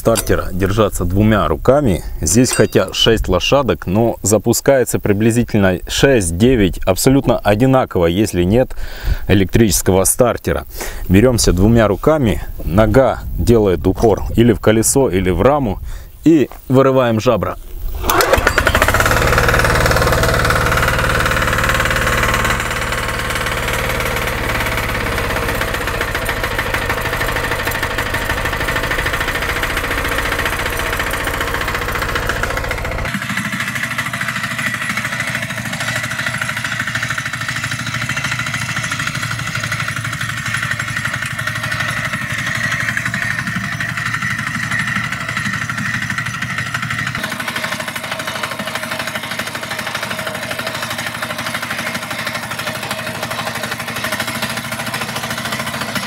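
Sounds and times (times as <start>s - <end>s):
diesel engine clattering: 18.0s - 56.0s.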